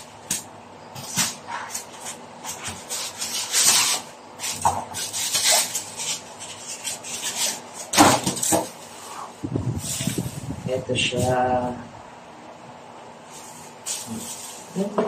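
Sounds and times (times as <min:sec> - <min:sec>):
cardboard and paper rustling: 0:00.9 - 0:09.1, 0:13.3 - 0:15.0.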